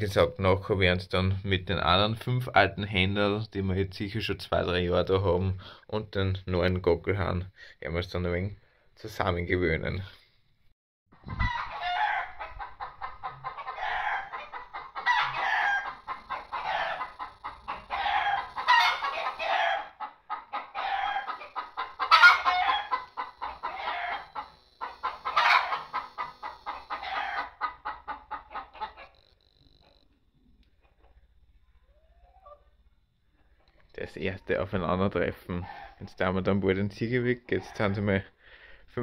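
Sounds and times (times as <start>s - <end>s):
chickens clucking and cackling: 11.2s - 34.6s, 35.3s - 36.3s, 37.0s - 38.2s.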